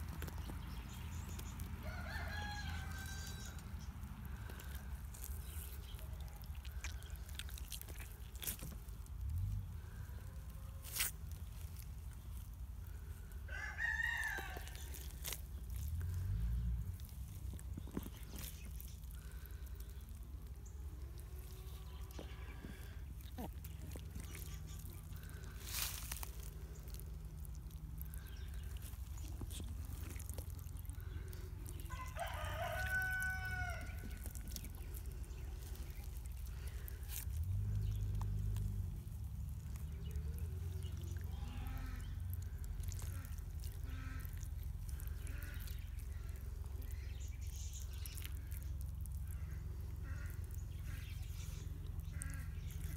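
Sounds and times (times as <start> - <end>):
steady low rumble: 0.0 - 13.5, 14.3 - 52.9
rooster crowing: 1.8 - 3.6, 13.5 - 14.8, 31.9 - 34.1
chicken calls: 27.8 - 38.4.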